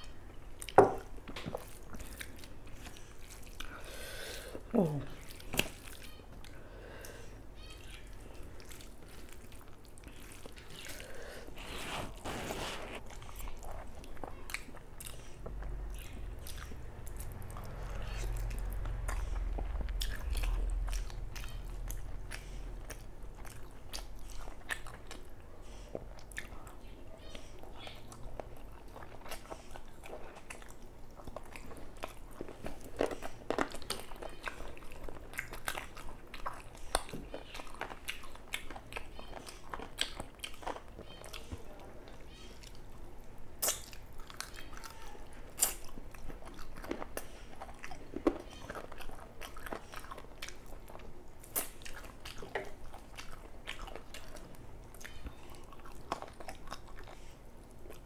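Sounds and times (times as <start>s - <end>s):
chewing and mouth smacks: 0.3s - 3.8s, 5.1s - 6.6s, 7.8s - 11.8s, 13.0s - 58.0s
low rumble: 15.5s - 23.3s.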